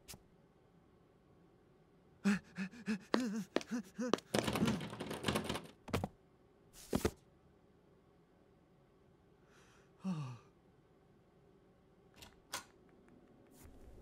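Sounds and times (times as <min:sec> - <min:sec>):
cartoon running footsteps: 0:02.6 - 0:06.2.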